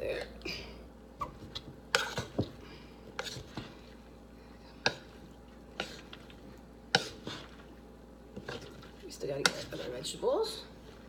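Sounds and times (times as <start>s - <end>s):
spoon stirring in metal pot: 1.2s - 10.6s.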